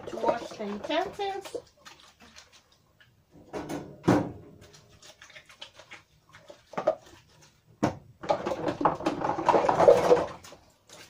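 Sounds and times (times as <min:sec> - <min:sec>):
plastic dishes clattering: 0:00.0 - 0:01.6, 0:06.6 - 0:07.2, 0:07.8 - 0:10.9.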